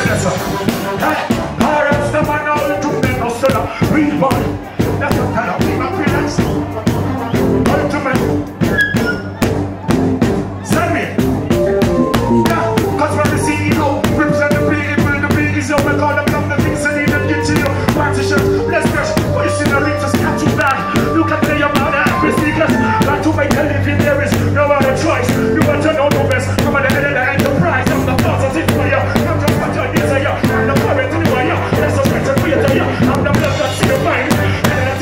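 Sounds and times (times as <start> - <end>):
bass line: 0.0 - 35.0
live reggae band: 0.0 - 35.0
drum beat: 9.4 - 35.0.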